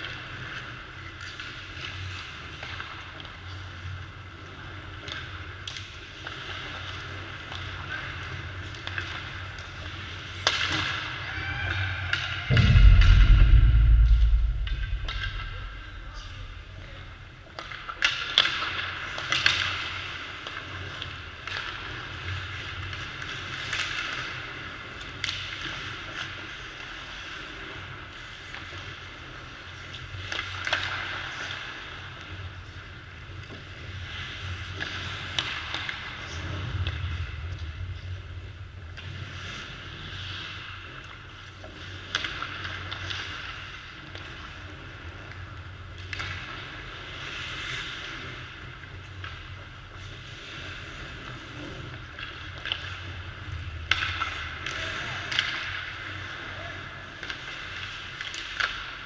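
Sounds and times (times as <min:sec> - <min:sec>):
hockey sticks and pucks clacking: 0:00.0 - 0:11.2, 0:17.5 - 0:37.8, 0:38.9 - 0:59.0
low steady hum: 0:12.5 - 0:17.8.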